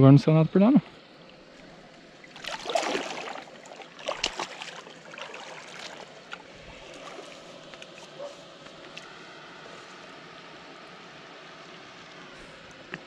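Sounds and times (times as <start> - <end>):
shallow water splashing: 1.2 - 9.0.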